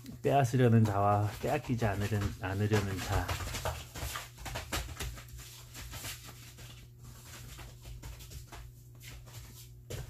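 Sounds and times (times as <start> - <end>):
dog paws scrabbling on plastic tarp: 0.1 - 10.0.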